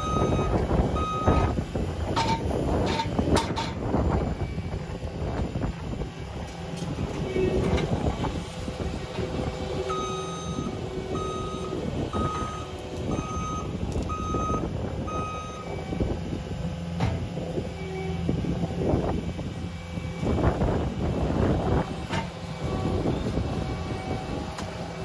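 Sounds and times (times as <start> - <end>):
backup alarm beeping: 0.0 - 1.5, 9.9 - 15.7
engine running: 0.0 - 25.0.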